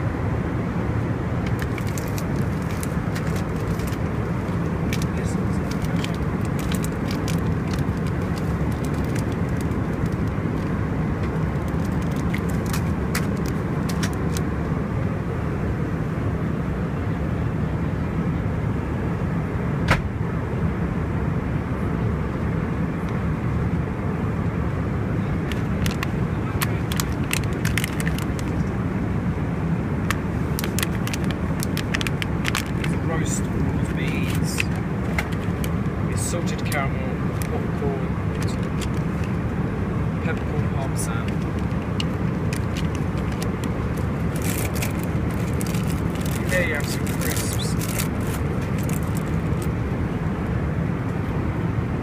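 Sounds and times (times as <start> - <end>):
airplane cabin roar: 0.0 - 52.0
snack packaging crinkling: 1.4 - 10.7, 11.5 - 14.4, 25.5 - 28.6, 30.4 - 33.0, 33.8 - 35.8, 38.3 - 39.4, 41.2 - 49.7.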